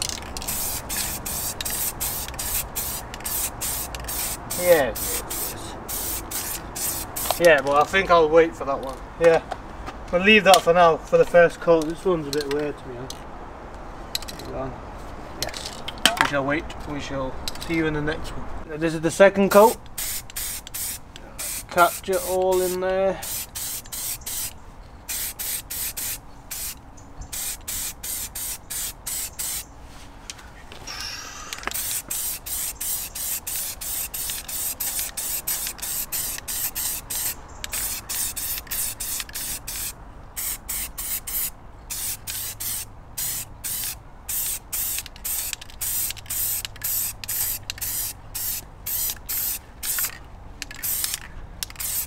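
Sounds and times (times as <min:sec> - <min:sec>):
aerosol spray can hissing: 0:00.0 - 0:07.4, 0:19.9 - 0:24.5, 0:25.1 - 0:29.6, 0:31.4 - 0:50.2, 0:50.8 - 0:52.0.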